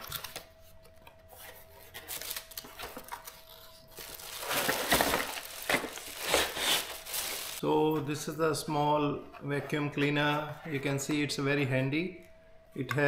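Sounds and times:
plastic packaging crinkling: 0:01.9 - 0:07.6.

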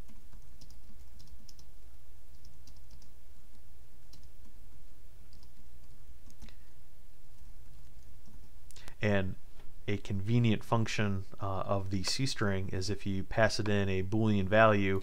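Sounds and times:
keyboard typing: 0:00.0 - 0:04.6, 0:05.3 - 0:06.6, 0:07.3 - 0:08.6
steady low hum: 0:00.0 - 0:15.0.

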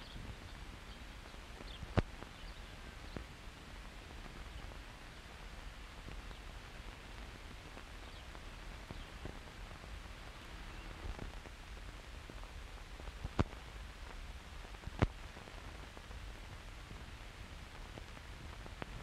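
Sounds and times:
film soundtrack hiss and rumble: 0:00.0 - 0:19.0.

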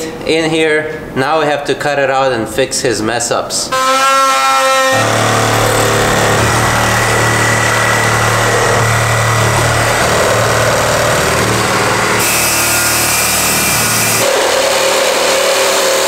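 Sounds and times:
reciprocating saw cutting wood: 0:04.6 - 0:16.0.

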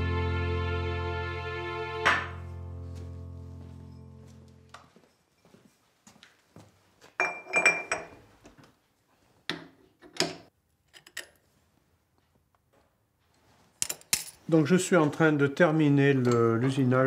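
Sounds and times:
metal tools clinking and knocking: 0:07.2 - 0:08.2, 0:13.8 - 0:14.5.

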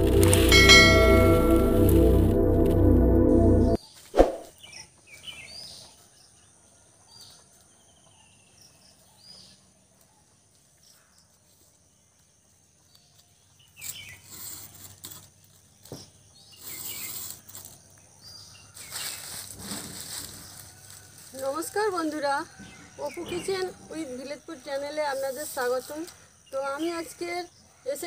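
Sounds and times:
dry sticks crackling and snapping: 0:00.0 - 0:00.9.

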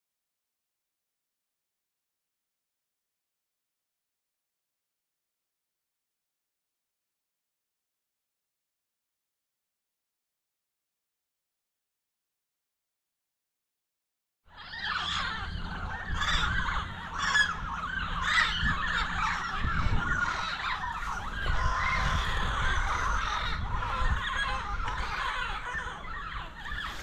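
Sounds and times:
flock of parrots calling: 0:14.5 - 0:27.0
wind rumble on microphone: 0:14.5 - 0:27.0.

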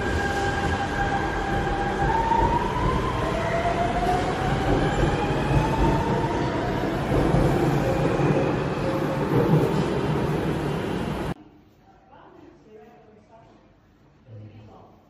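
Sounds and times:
metro train rumble: 0:00.0 - 0:11.4.

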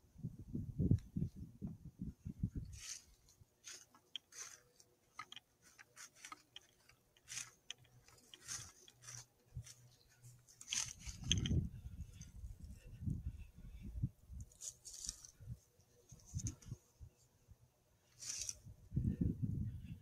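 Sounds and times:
handling noise clicks and rustles: 0:02.7 - 0:12.9, 0:14.4 - 0:16.8, 0:18.1 - 0:18.6.

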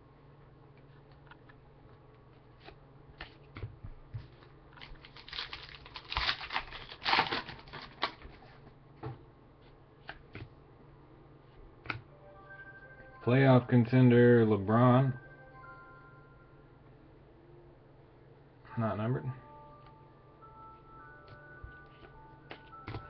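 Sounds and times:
wrapper tearing and crinkling: 0:04.8 - 0:08.3
cards clicking and tapping: 0:21.2 - 0:23.0.

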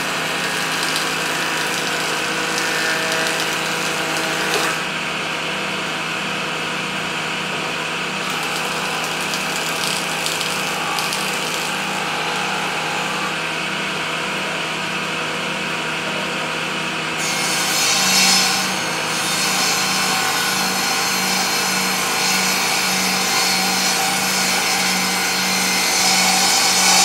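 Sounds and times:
saw blade cutting wood: 0:00.0 - 0:04.9, 0:08.2 - 0:13.4, 0:17.2 - 0:27.0
table saw motor hum: 0:00.0 - 0:16.3, 0:17.2 - 0:27.0.

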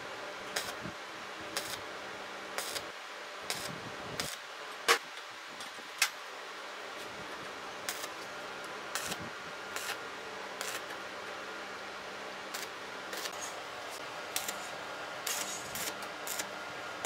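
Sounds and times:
steady low hum: 0:00.0 - 0:17.0
welding arc sputtering: 0:00.5 - 0:00.8, 0:01.5 - 0:01.9, 0:02.5 - 0:05.0, 0:07.8 - 0:08.2, 0:08.9 - 0:10.0, 0:10.6 - 0:11.0, 0:12.5 - 0:16.6.

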